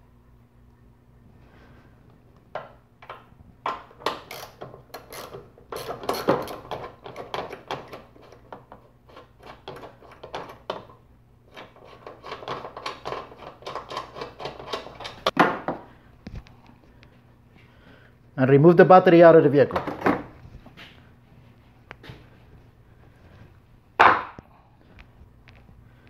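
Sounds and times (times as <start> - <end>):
hand ratchet clicking: 4.0 - 8.0.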